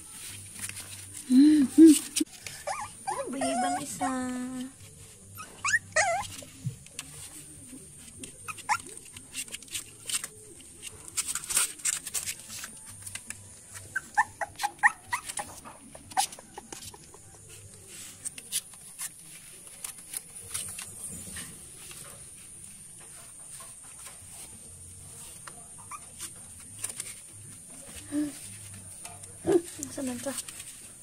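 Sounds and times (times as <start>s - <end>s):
puppies whimpering and squeaking: 0.7s - 19.2s, 25.7s - 28.6s.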